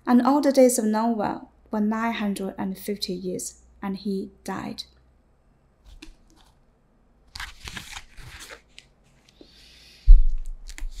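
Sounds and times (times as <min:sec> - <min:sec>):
book pages rustling: 0:05.9 - 0:06.6, 0:07.3 - 0:09.6, 0:10.3 - 0:11.0.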